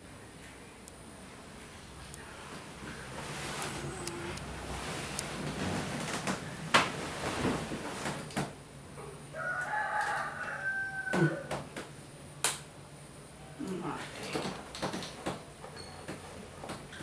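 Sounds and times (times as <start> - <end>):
rooster crowing: 9.3 - 11.6.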